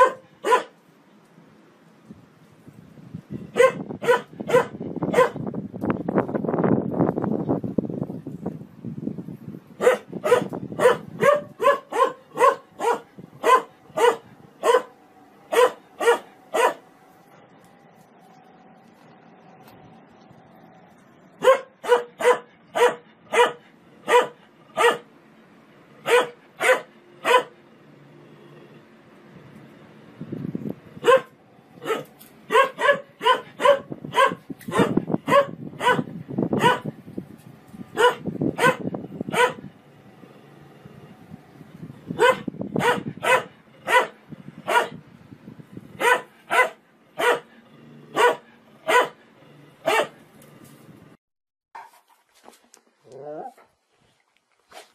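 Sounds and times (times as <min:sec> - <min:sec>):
dog barking: 0:00.0 - 0:00.8, 0:03.6 - 0:05.4, 0:09.8 - 0:16.8, 0:21.4 - 0:25.1, 0:26.0 - 0:27.6, 0:31.0 - 0:36.9, 0:37.9 - 0:39.6, 0:42.2 - 0:45.0, 0:46.0 - 0:47.5, 0:48.1 - 0:49.2, 0:49.8 - 0:50.2.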